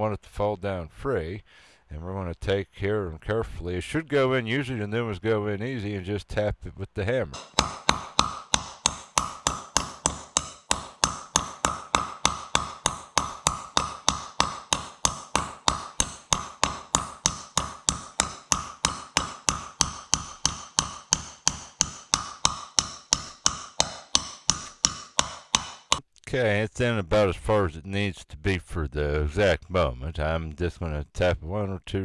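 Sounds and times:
light hammer taps ringing on metal: 7.4 - 26.0.

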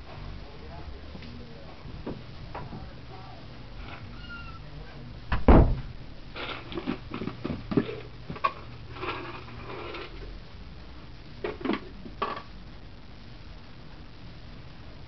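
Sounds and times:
heavy thump: 5.3 - 6.0.

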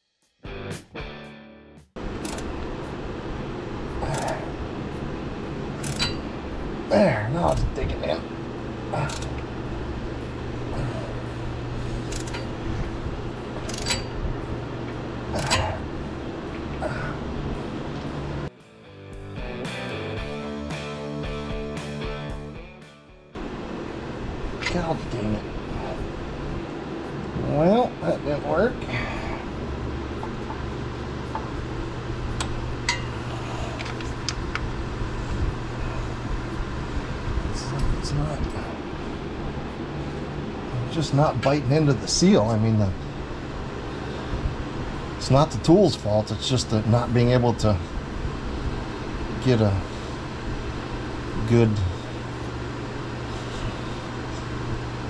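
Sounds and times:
low hum: 2.0 - 18.5, 23.4 - 55.0
wrench clinking on metal tool: 5.8 - 6.2, 13.7 - 14.2.

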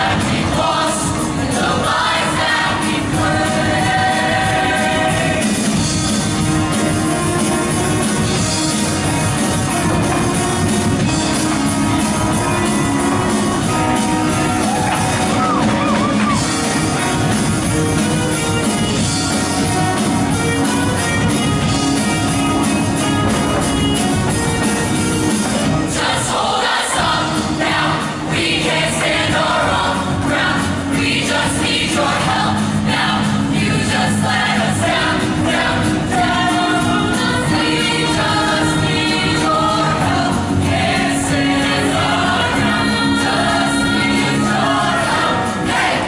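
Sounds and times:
choir singing: 0.0 - 5.9, 25.8 - 46.0
loud instrumental accompaniment: 0.0 - 46.0.

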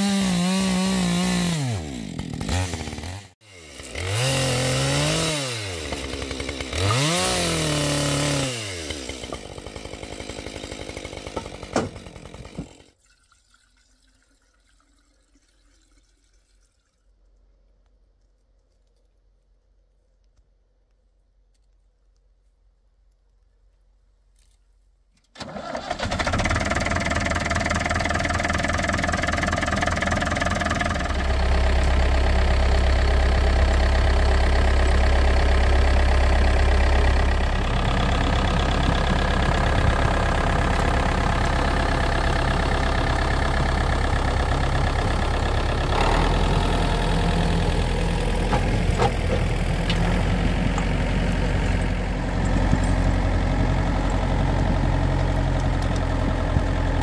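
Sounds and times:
tractor engine running: 0.0 - 12.9, 25.4 - 57.0.

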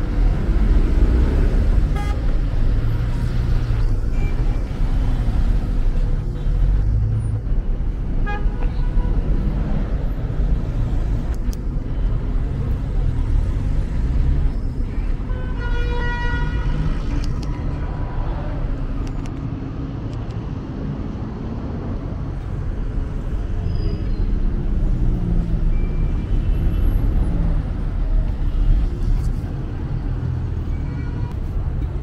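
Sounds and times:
street traffic rumble: 0.0 - 32.0
car horn: 1.9 - 2.3, 8.2 - 9.2, 15.3 - 17.1.

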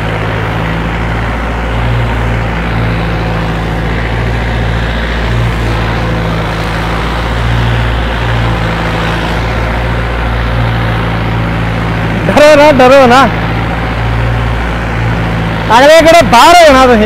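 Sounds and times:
tractor diesel engine under load: 0.0 - 17.0.

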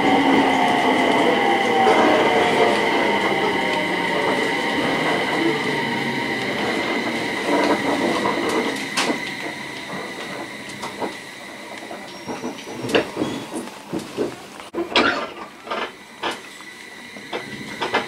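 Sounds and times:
steady high whine: 0.0 - 11.8
train running noise: 0.0 - 18.0.

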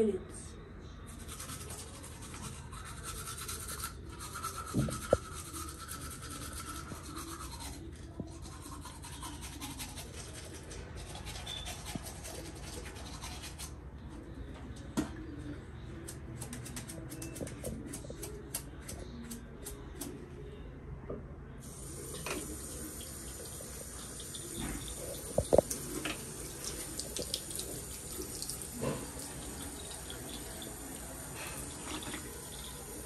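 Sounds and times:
toothbrush scrubbing teeth: 1.1 - 13.8, 21.6 - 33.0.

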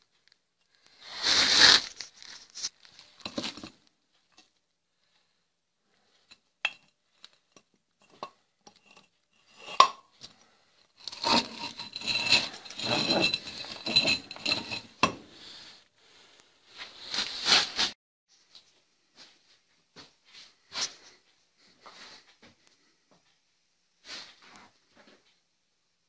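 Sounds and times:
metal clinking and rattling: 11.0 - 15.1.

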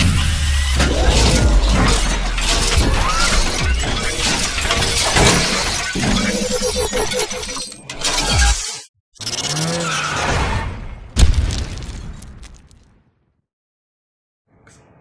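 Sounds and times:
deep bass rumble: 0.0 - 4.7
shattering crashing hits: 0.0 - 6.0
cinematic music: 0.0 - 6.8.

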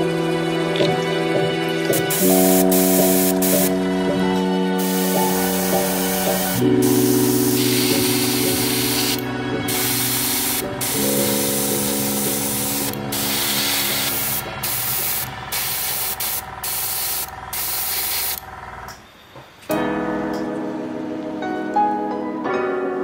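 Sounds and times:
airbrush spraying hiss: 1.9 - 3.8, 4.8 - 18.4.

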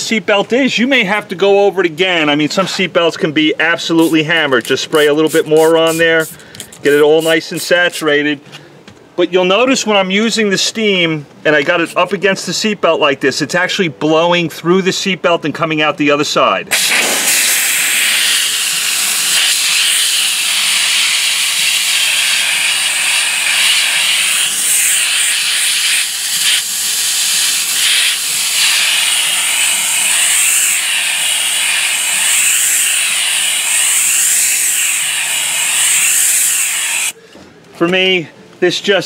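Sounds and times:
steam cleaner hissing: 16.7 - 37.2.

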